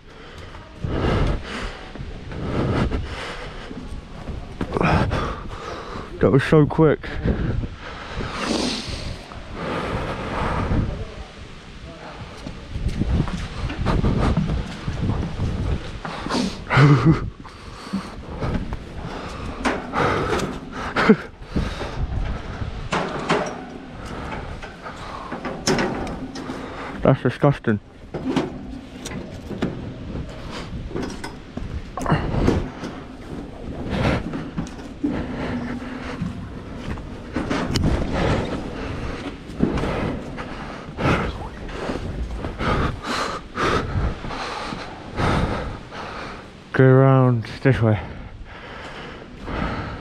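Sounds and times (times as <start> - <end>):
hard breathing: 0.0 - 46.8, 47.7 - 50.0
metal fence panels rattling: 22.1 - 27.1.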